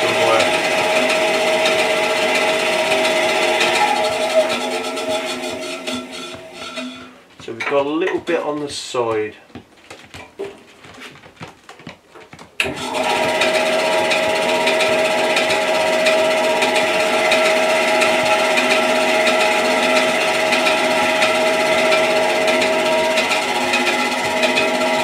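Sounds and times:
bandsaw running: 0:00.0 - 0:08.6, 0:12.6 - 0:25.0.

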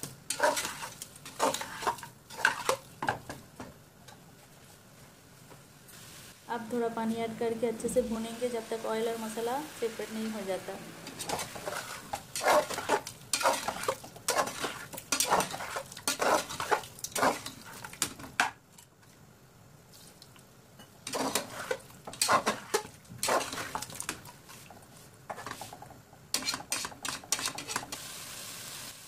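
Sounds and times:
metal spatula scraping a pot: 0:00.3 - 0:02.8, 0:11.0 - 0:18.0, 0:21.0 - 0:24.2, 0:25.3 - 0:28.0.

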